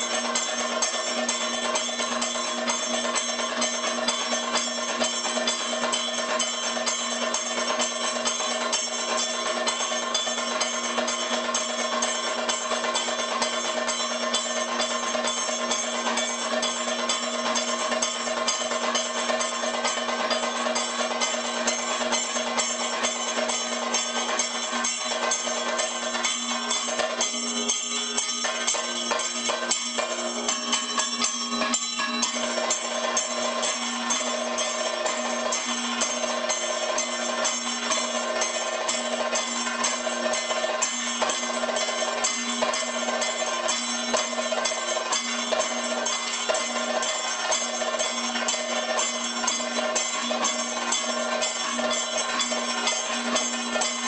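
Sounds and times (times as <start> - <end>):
metal cymbals ringing: 0.0 - 54.0
gong ringing: 14.6 - 54.0.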